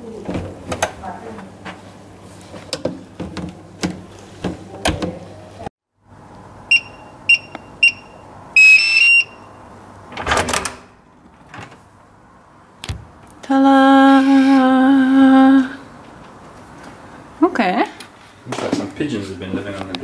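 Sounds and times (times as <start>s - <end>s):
short key beeps: 6.7s - 9.5s.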